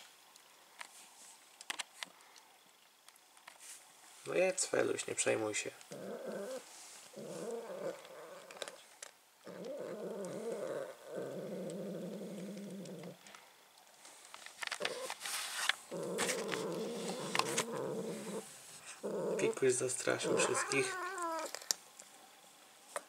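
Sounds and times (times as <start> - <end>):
cat growling: 5.8 - 13.2, 15.9 - 21.8.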